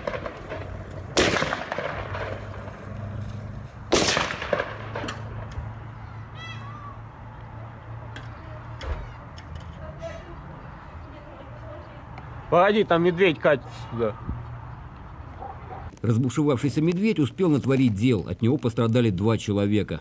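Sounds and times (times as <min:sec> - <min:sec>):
rifle gunshots with echo: 0:00.0 - 0:02.8, 0:03.9 - 0:05.1.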